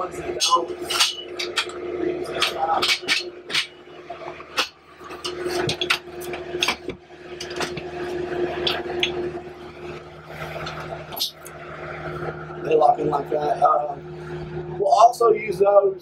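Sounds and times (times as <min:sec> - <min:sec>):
steady hum: 0:00.0 - 0:16.0
metal bar clicking and clanking: 0:00.4 - 0:01.7, 0:02.3 - 0:03.8.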